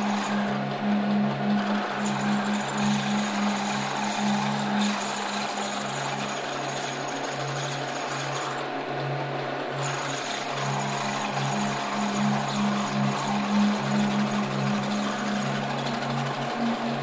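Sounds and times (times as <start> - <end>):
milling machine cutting steel: 0.0 - 17.0.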